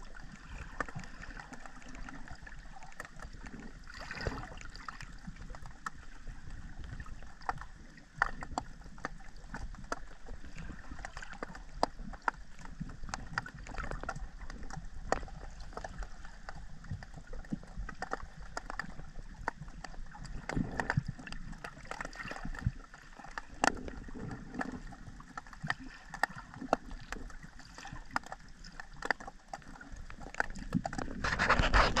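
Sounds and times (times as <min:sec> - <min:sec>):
surge of underwater noise: 0:00.0 - 0:17.9
underwater clicks and crackles: 0:00.0 - 0:32.0
underwater rush of water: 0:00.0 - 0:32.0.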